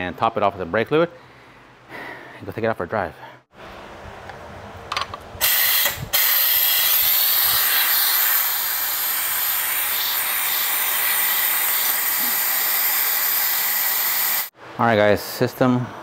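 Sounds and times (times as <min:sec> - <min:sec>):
air brake bleeder hissing: 0:05.4 - 0:14.5.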